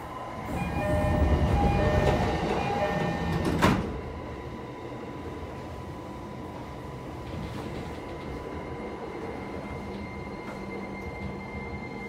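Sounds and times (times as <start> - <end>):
train running noise: 0.0 - 12.0.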